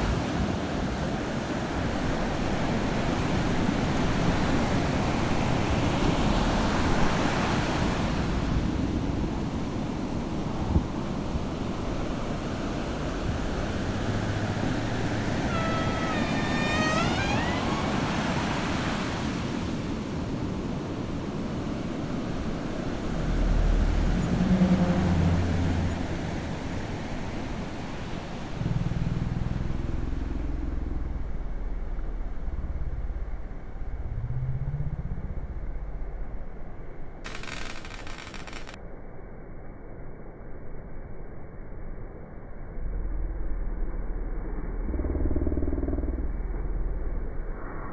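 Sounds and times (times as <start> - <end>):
ocean surf breaking: 0.0 - 38.7
low humming tones: 1.3 - 47.9
drawn-out high call: 14.9 - 18.9.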